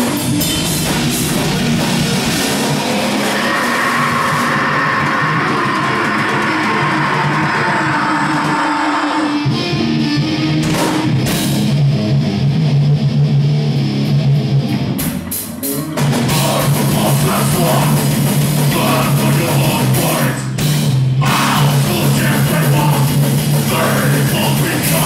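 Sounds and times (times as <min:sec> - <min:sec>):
metal band playing: 0:00.0 - 0:25.0
sharp drum hits: 0:10.6 - 0:11.7.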